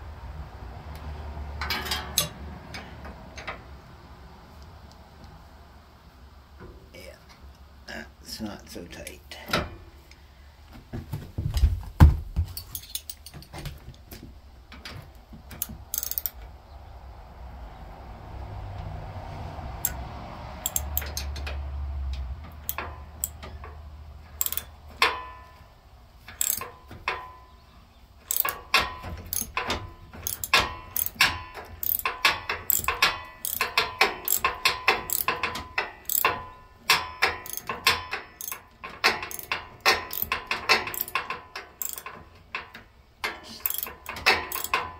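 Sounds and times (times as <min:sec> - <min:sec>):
heavy knocks: 0:10.8 - 0:12.6
hand ratchet clicking: 0:15.5 - 0:16.4, 0:19.8 - 0:20.0, 0:20.6 - 0:21.6, 0:22.6 - 0:23.6, 0:24.3 - 0:25.4, 0:26.2 - 0:27.4, 0:28.2 - 0:44.9.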